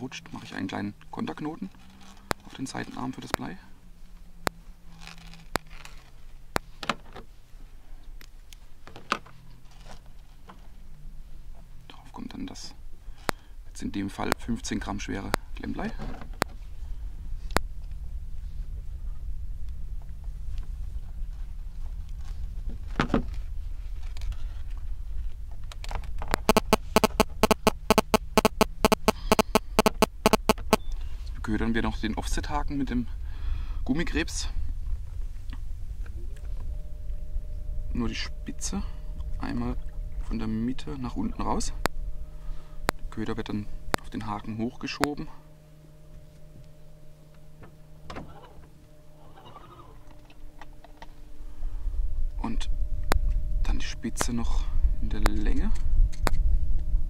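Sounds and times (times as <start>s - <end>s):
faint low hum: 0.0s - 57.0s
rapid sharp clicks: 26.4s - 30.8s.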